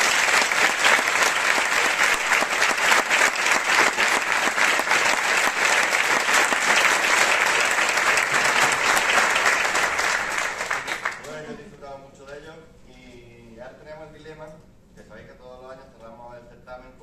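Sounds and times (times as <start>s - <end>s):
crowd applause: 0.0s - 11.4s.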